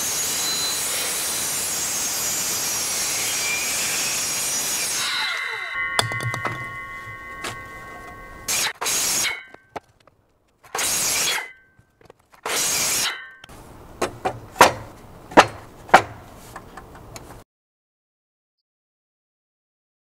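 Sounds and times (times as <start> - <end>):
wooden blocks knocking: 6.0 - 8.2.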